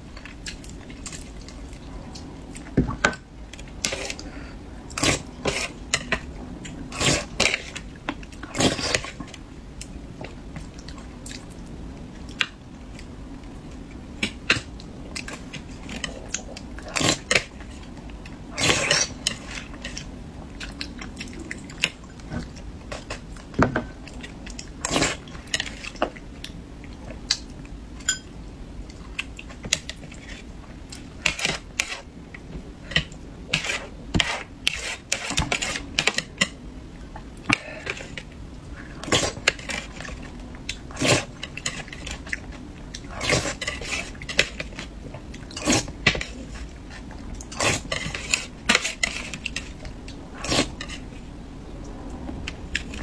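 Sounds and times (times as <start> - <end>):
cutlery clinking against a dish: 28.0 - 28.3.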